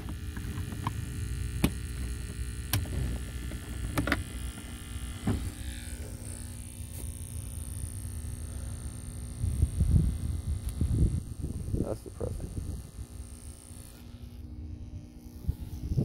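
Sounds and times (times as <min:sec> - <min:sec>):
wind rumble on microphone: 0:09.3 - 0:13.2, 0:14.6 - 0:16.0.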